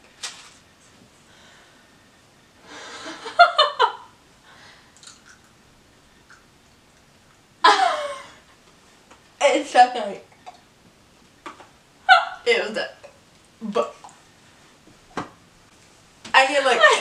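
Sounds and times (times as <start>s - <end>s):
giggling laughter: 7.6s - 8.4s.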